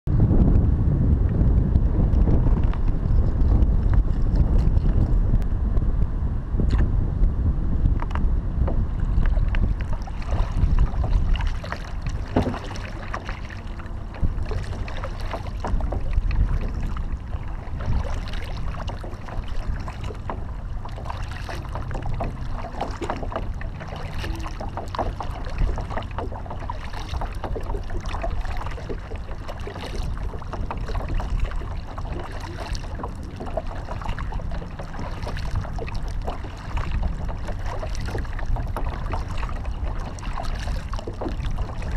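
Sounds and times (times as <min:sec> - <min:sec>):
wind buffeting microphone: 0:00.1 - 0:41.9
paddle splashing in water: 0:08.6 - 0:41.9.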